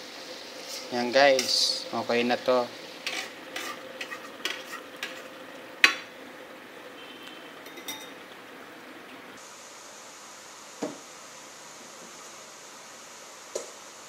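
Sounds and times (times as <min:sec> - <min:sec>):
metal pot clinking: 0:05.8 - 0:06.1, 0:07.6 - 0:08.2.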